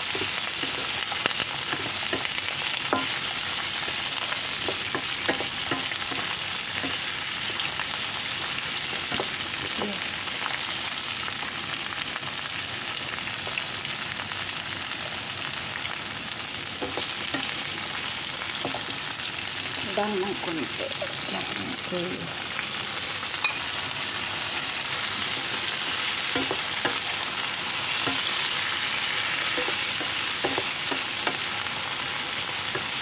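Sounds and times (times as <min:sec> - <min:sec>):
spatula stirring food: 0:00.0 - 0:09.9, 0:16.8 - 0:19.5, 0:23.8 - 0:33.0
food sizzling in frying pan: 0:00.0 - 0:33.0.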